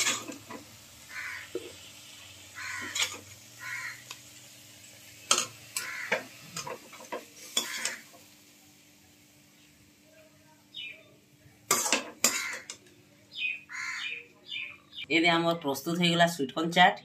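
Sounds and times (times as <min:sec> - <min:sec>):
metal spatula scraping steel pan: 0:02.8 - 0:03.2.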